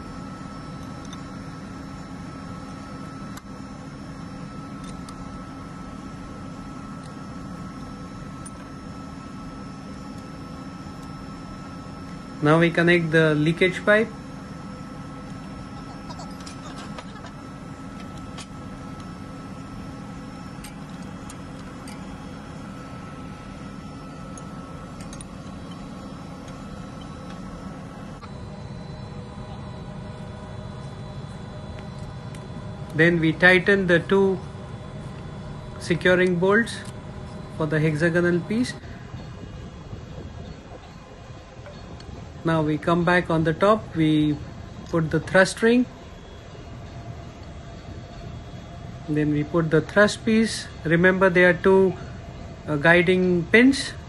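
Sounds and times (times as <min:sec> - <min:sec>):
machinery drone with whine: 0:00.0 - 0:54.0.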